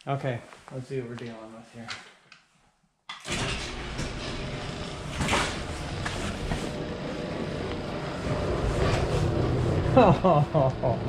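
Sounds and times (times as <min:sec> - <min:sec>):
garage door opener motor rumble: 0:03.3 - 0:11.0.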